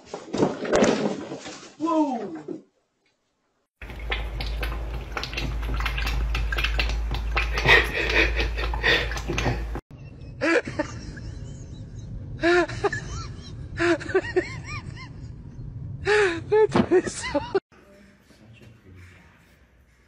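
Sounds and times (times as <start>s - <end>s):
water splashing in a metal sink: 3.8s - 9.8s
low hum: 3.8s - 16.7s.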